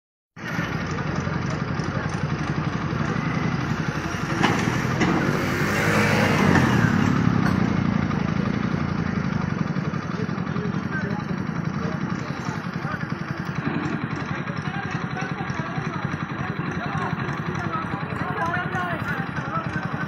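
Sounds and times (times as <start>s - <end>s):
vehicle engines and road noise: 0.4s - 20.0s
vehicle passing close: 3.0s - 9.0s.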